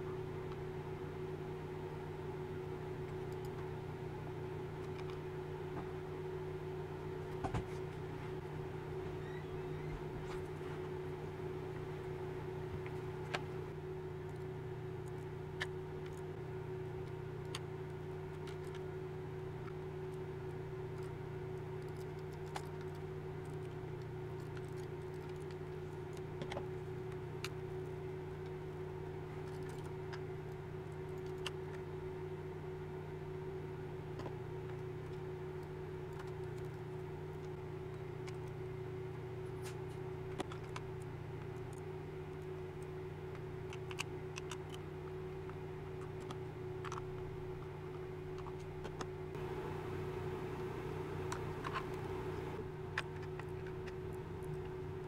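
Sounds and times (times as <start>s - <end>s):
low background hum: 0.0s - 55.0s.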